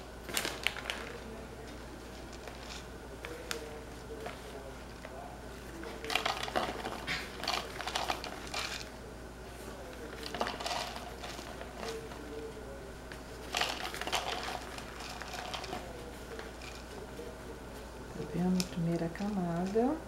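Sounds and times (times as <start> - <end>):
plastic bag crinkling: 0.2 - 4.6, 5.8 - 8.9, 10.0 - 12.4, 13.4 - 17.3.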